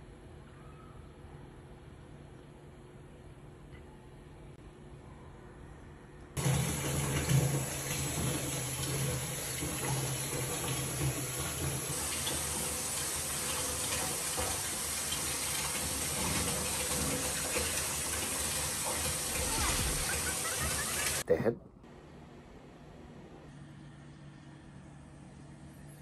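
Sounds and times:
tap water running into bathtub: 6.4 - 21.2.

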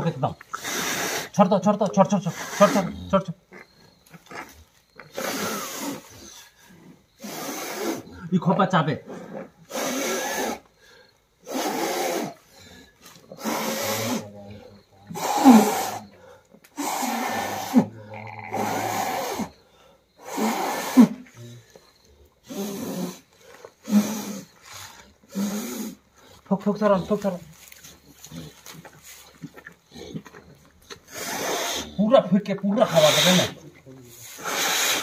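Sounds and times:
forceful puffs of breath: 34.3 - 35.0.

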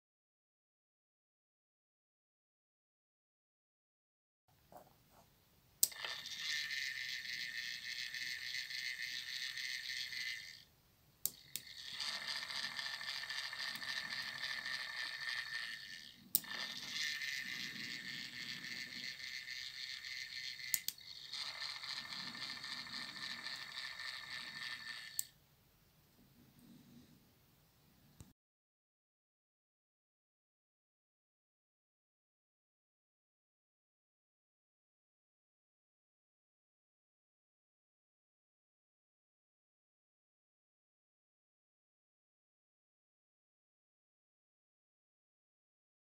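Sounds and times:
stall motor whirring: 5.8 - 10.6, 11.3 - 25.3.

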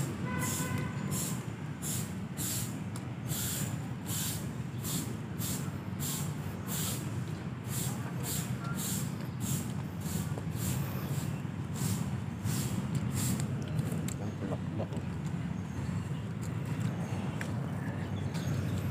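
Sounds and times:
footsteps scuffing on pavement: 8.3 - 10.8.

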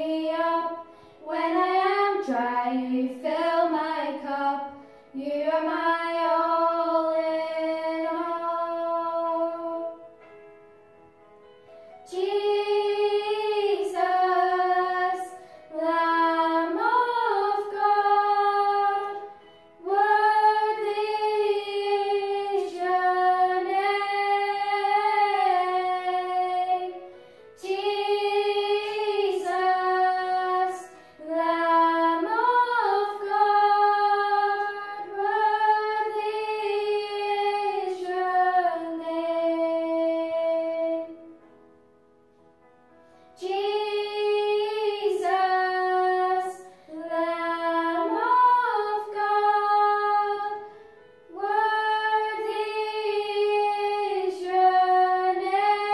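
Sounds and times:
girls singing together: 0.0 - 10.0, 12.1 - 41.4, 43.4 - 55.9.

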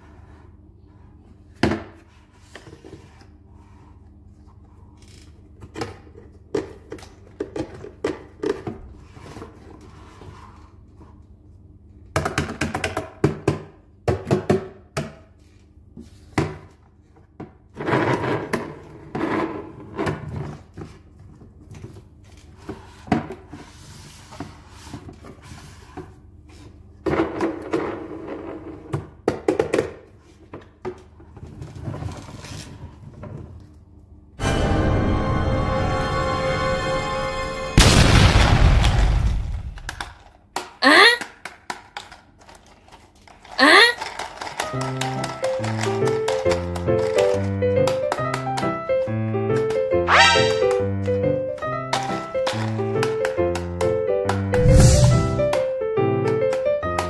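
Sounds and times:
plastic toy parts knocking and clicking: 39.8 - 48.7.

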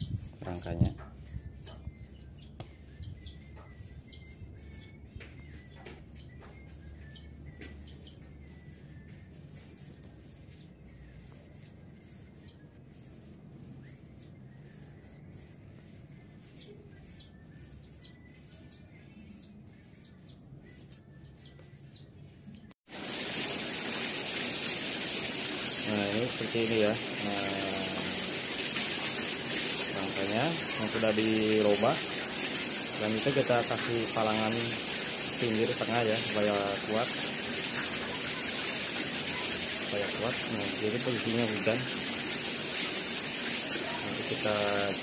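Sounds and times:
small birds chirping: 0.0 - 22.8, 25.6 - 45.0
loud steady hiss: 22.9 - 45.0.

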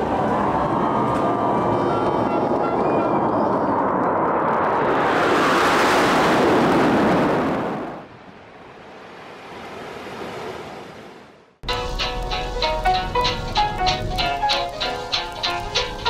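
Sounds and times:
jet formation roaring overhead: 0.0 - 8.1.

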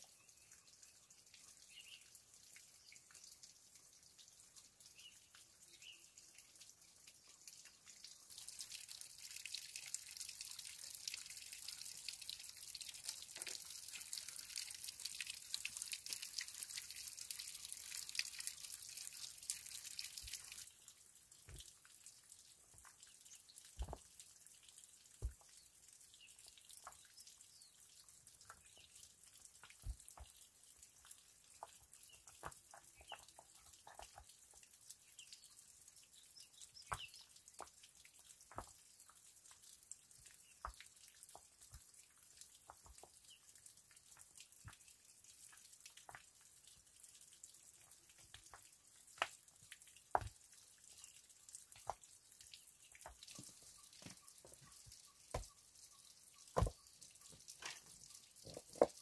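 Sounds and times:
small knocks and taps: 23.7 - 24.2, 25.2 - 25.6, 26.8 - 27.1, 29.6 - 30.4, 31.6 - 34.4, 36.9 - 37.8, 38.5 - 38.8, 40.6 - 41.9, 50.1 - 50.4, 52.9 - 55.6, 56.5 - 59.0.

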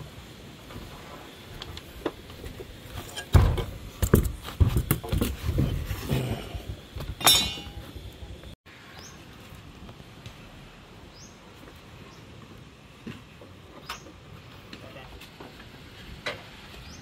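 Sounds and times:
short metallic ring: 7.2 - 7.8.

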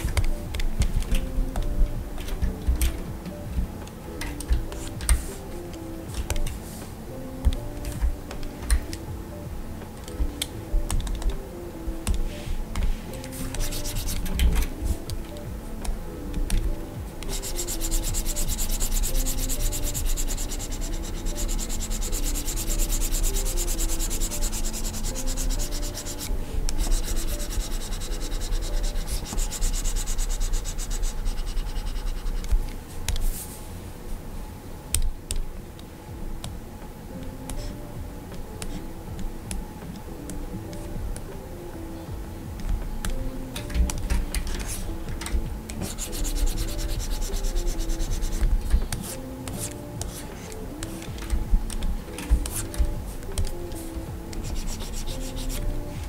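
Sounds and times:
stylus tapping on screen: 0.0 - 6.7, 7.4 - 33.3, 42.0 - 56.0
stylus scratching on screen: 12.4 - 15.2, 17.2 - 32.6, 43.0 - 56.0.

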